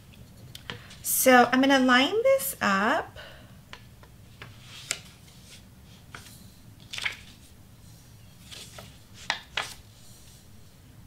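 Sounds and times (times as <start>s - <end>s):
paper rustling: 4.4s - 7.5s, 8.4s - 10.3s.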